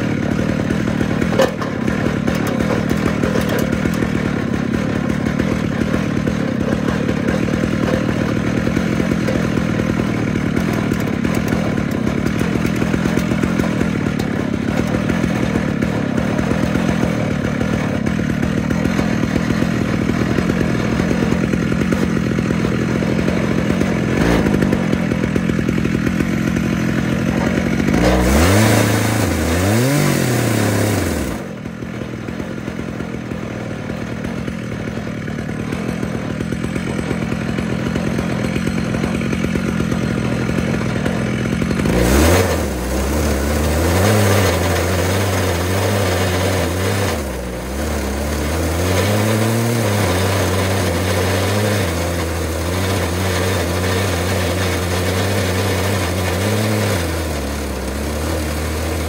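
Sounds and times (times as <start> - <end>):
chainsaw ripping through log: 0.0 - 59.0.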